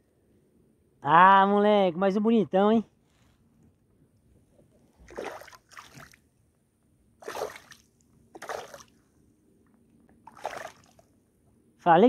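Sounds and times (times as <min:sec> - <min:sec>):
water splashes: 0:05.0 - 0:06.2, 0:07.2 - 0:09.0, 0:10.2 - 0:11.1.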